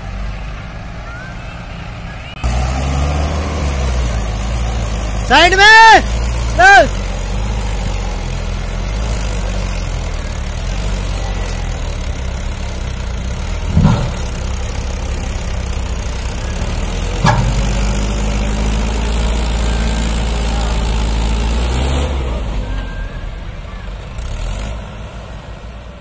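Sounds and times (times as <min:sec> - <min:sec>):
diesel engines under load: 0:00.0 - 0:26.0
short thumps: 0:13.6 - 0:14.7, 0:17.0 - 0:18.5.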